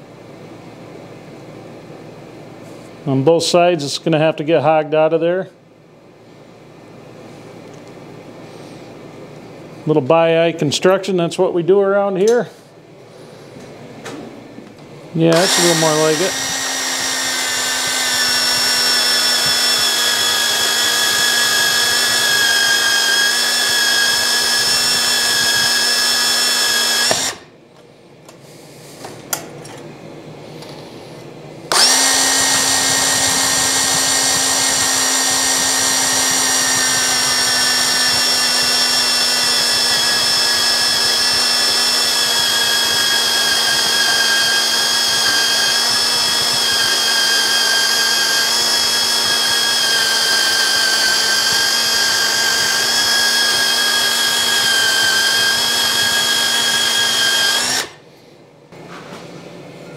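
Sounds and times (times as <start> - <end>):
band saw cutting metal: 15.3 - 27.5, 31.7 - 58.0.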